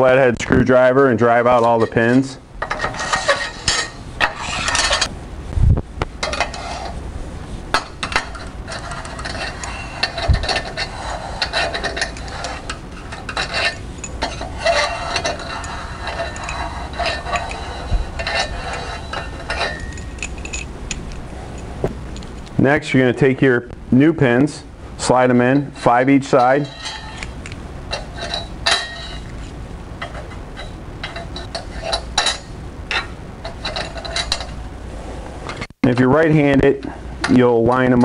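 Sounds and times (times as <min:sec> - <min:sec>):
metal pins clinking and scraping: 0:01.3 - 0:05.1, 0:06.2 - 0:22.5, 0:25.0 - 0:34.8.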